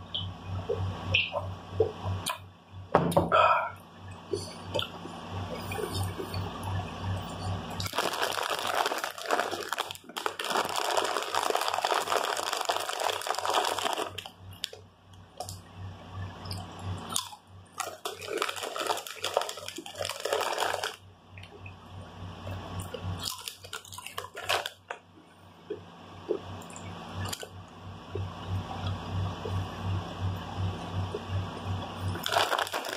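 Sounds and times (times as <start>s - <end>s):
chewing and crunching: 7.4s - 14.8s, 16.5s - 21.6s, 22.8s - 25.0s, 32.1s - 32.9s
foil chip bag rustling: 7.8s - 14.8s, 17.8s - 21.0s, 23.2s - 25.0s, 32.1s - 32.9s.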